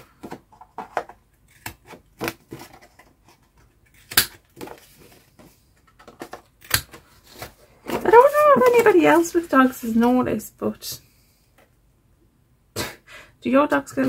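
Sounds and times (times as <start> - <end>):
card and paper handling: 0.5 - 10.2.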